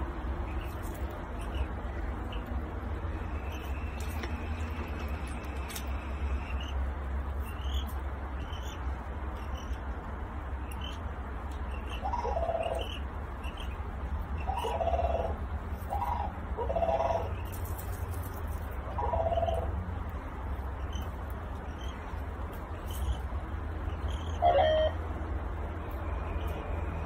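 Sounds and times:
steady low hum: 0.0s - 27.0s
crane chick peeping: 0.4s - 6.8s, 10.6s - 18.2s, 18.8s - 19.8s, 20.5s - 25.1s, 25.8s - 27.0s.

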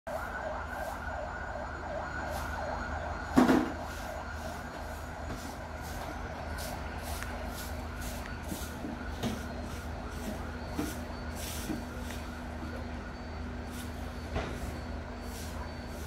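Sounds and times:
city street traffic: 0.1s - 16.0s
loud thump: 3.3s - 3.8s.

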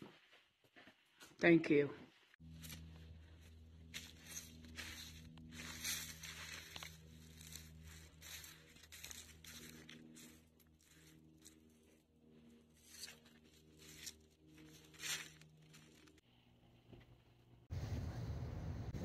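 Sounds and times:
footsteps on dry grass and gravel: 0.0s - 16.2s.

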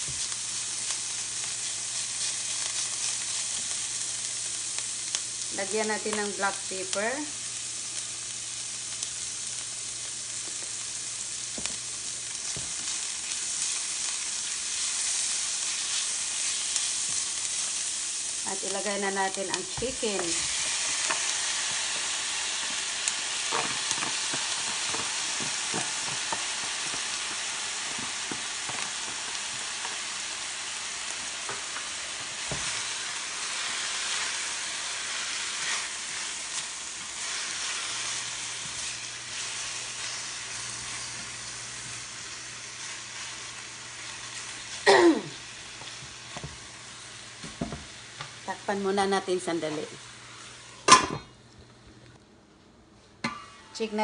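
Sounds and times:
food sizzling in a pan: 0.0s - 51.4s.

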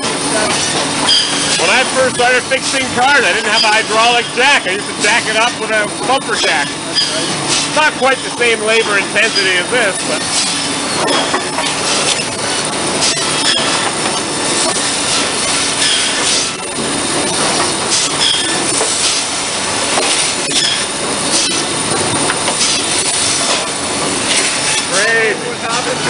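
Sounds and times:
mill machinery clattering: 0.0s - 26.0s
machine high squeal: 0.2s - 16.9s, 17.9s - 18.8s, 20.4s - 21.7s.

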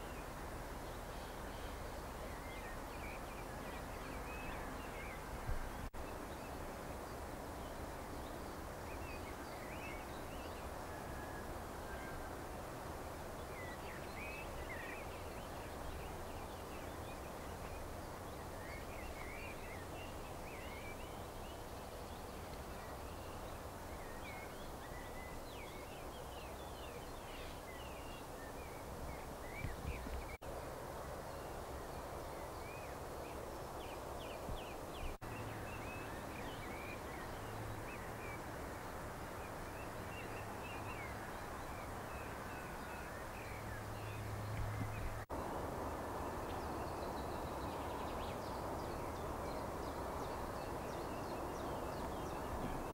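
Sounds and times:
birds chirping and twittering: 13.0s - 30.4s, 31.2s - 52.9s.

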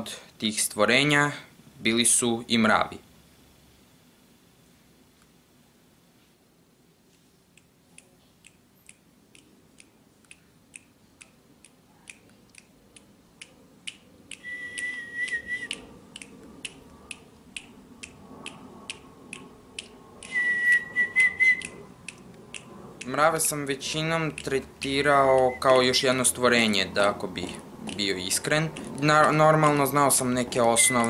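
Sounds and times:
evenly spaced sharp ticks: 7.5s - 20.4s, 21.2s - 31.0s
high whistle-like tone: 14.4s - 15.8s, 20.2s - 21.8s, 25.4s - 25.9s, 30.7s - 31.0s.

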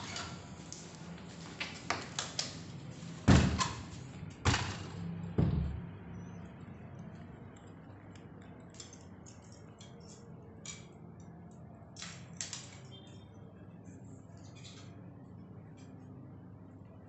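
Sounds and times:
steady low hum: 2.6s - 12.3s.

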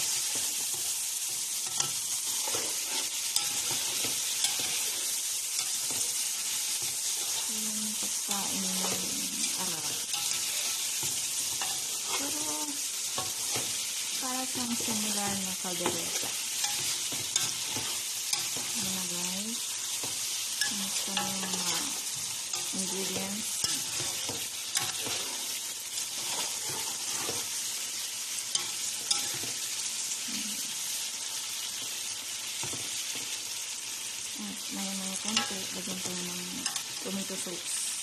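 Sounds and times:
chicken sizzling in oil: 0.0s - 38.0s
spatula scraping a metal pot: 20.0s - 27.6s.

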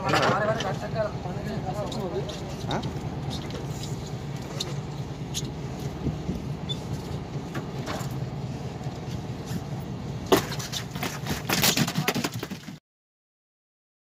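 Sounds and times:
boat engine humming: 0.0s - 11.5s.

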